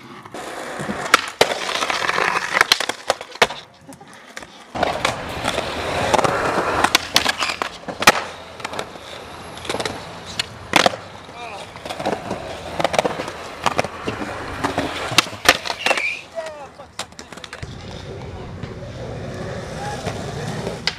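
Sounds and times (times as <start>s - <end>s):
skateboard wheels rolling on concrete: 0.0s - 20.9s
skateboard clacks: 0.1s - 20.9s.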